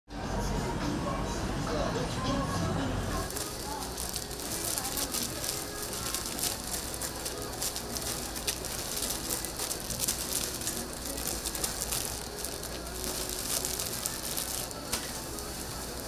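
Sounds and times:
food sizzling on a griddle: 3.3s - 16.0s.

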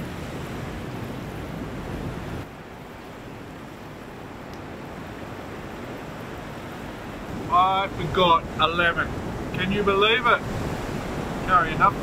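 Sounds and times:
surf washing against rocks: 0.0s - 12.0s
wind on microphone: 3.4s - 12.0s.

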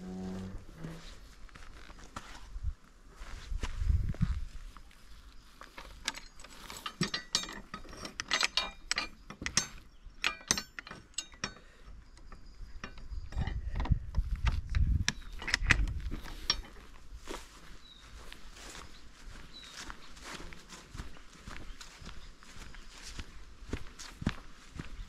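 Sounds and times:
metallic clicking and clinking: 5.8s - 16.8s.

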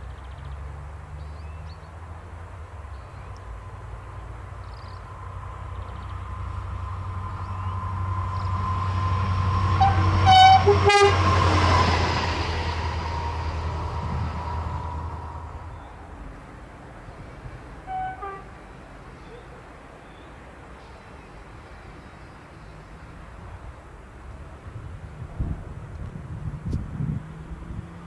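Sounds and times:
freight train rumble and whine: 2.8s - 27.0s
two-tone train horn: 7.9s - 15.4s, 17.8s - 18.6s.

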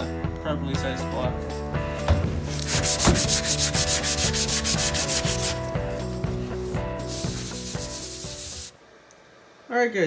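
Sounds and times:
sanding block rubbing: 2.6s - 5.7s, 6.8s - 8.7s.

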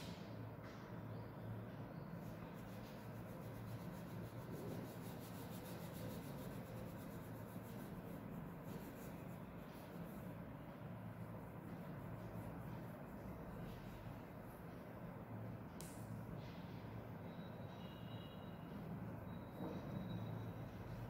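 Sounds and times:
low steady hum: 0.0s - 21.0s
crayon rubbing on paper: 2.4s - 10.4s.

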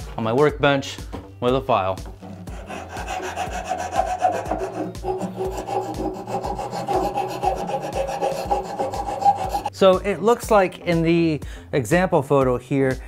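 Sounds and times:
hand files rasping on wood: 2.5s - 9.7s.

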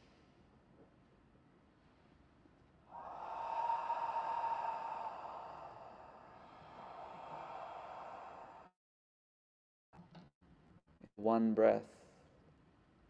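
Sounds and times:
man breathing out slowly: 2.9s - 8.8s.

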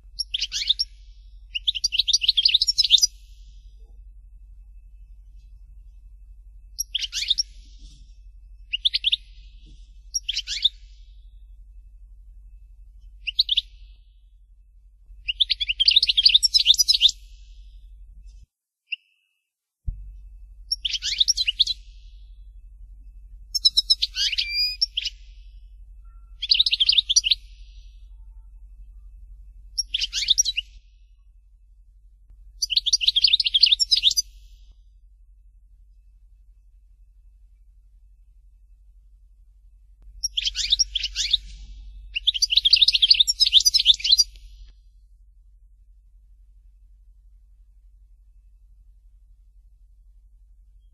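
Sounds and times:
steady low hum: 0.0s - 18.7s, 19.8s - 50.9s
goldfinch singing: 0.2s - 3.5s, 6.8s - 8.0s, 8.6s - 11.2s, 13.2s - 14.1s, 15.2s - 17.6s, 20.7s - 22.4s, 23.5s - 28.1s, 29.7s - 30.8s, 32.6s - 34.7s, 40.2s - 44.7s.

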